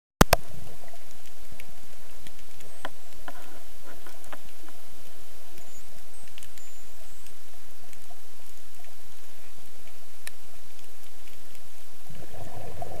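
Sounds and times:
faint clicks and crackles: 0.2 - 13.0
underwater rumble and hiss: 0.3 - 13.0.

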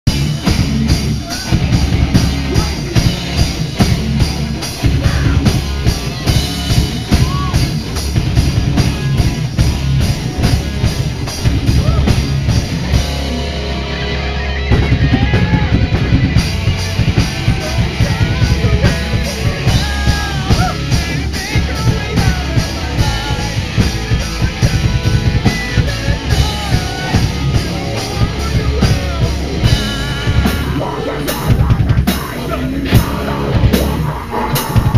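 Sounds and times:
metal band playing loud: 0.0 - 34.9.

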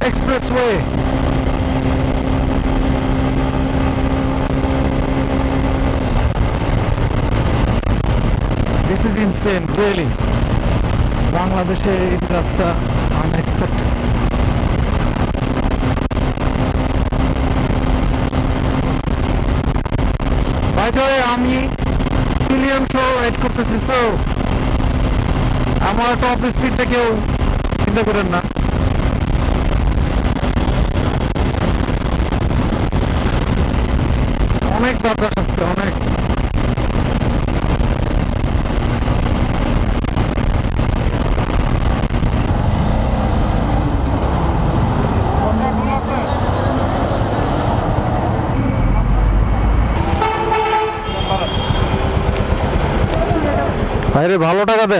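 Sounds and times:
wind rush on microphone: 0.0 - 54.3
motorcycle engine steady note: 0.0 - 54.4.

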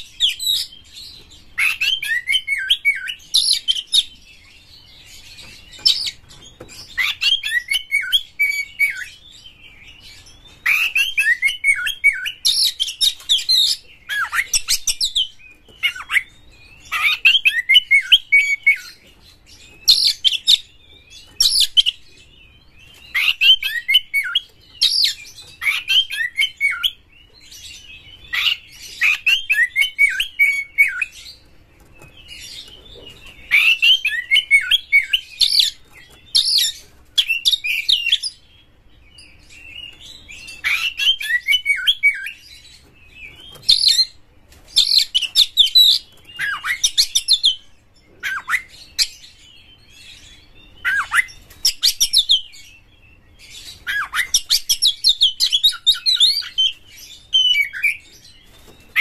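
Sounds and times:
songbird whistling and chattering: 5.1 - 22.0, 22.8 - 31.4, 32.0 - 38.5, 39.2 - 44.2, 44.8 - 59.0.

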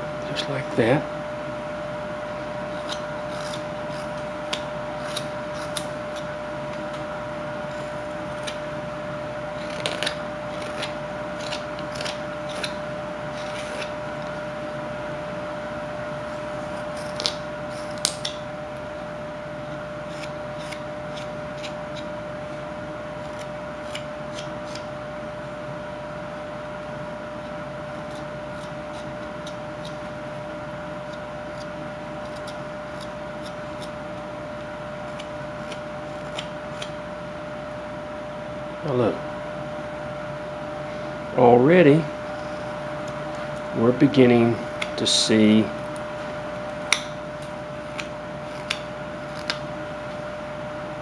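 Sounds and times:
steady background hum: 0.0 - 51.0
knife carving wood: 2.6 - 14.4, 16.4 - 18.5, 19.7 - 25.0, 27.4 - 30.2, 30.8 - 37.1, 46.6 - 50.2.

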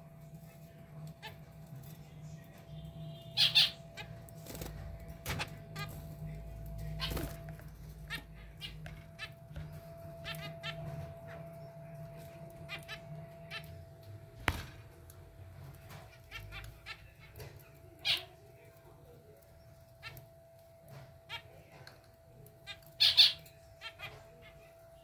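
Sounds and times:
finches calling: 2.4 - 6.0, 6.6 - 13.8, 22.6 - 25.0.

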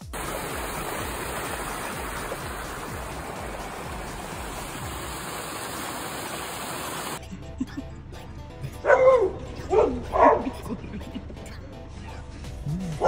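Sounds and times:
steady rushing noise: 0.0 - 7.2.

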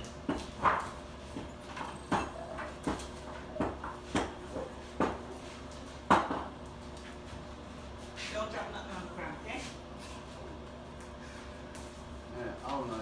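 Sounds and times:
dishes and utensils clattering: 0.0 - 4.7.

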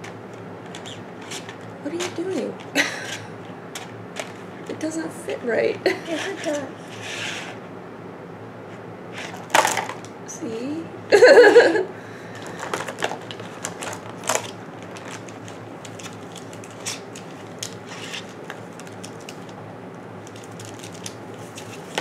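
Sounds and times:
packaging clicking and crackling: 0.0 - 4.4, 9.3 - 10.1, 12.4 - 19.6, 20.2 - 22.0.

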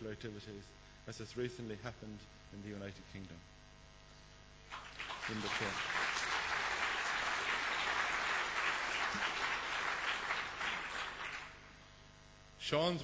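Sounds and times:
audience applauding: 4.7 - 11.8.

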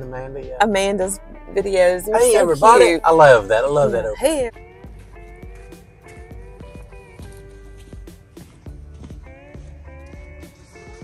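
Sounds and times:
background music with light beat: 0.0 - 11.0.

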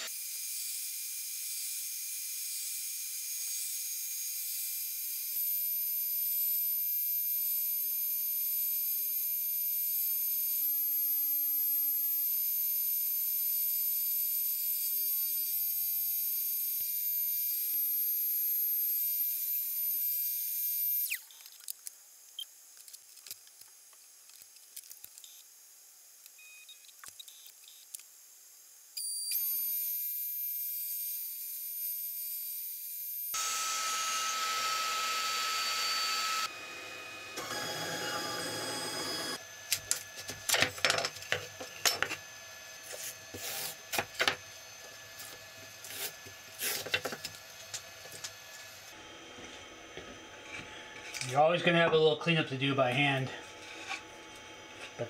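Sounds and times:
router spindle cutting wood: 33.4 - 39.4.

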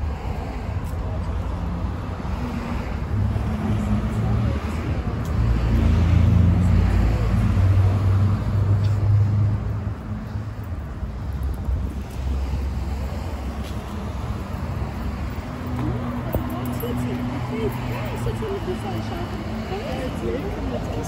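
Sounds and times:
street traffic: 0.0 - 21.0
vehicle engine humming: 0.0 - 21.0.

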